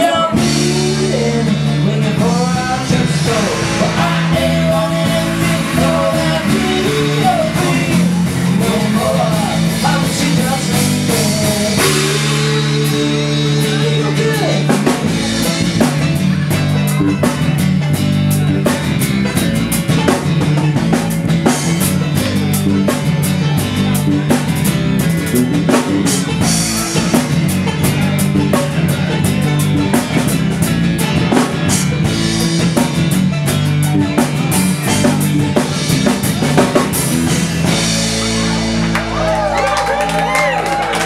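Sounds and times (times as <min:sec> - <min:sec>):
strummed acoustic guitar: 0:00.0 - 0:39.0
drum kit beat: 0:00.0 - 0:41.0
live band playing: 0:00.0 - 0:41.0.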